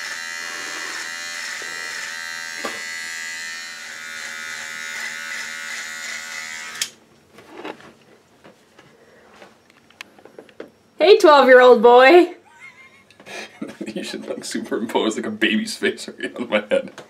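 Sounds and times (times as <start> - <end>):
electric beard trimmer buzzing: 0.0 - 7.0.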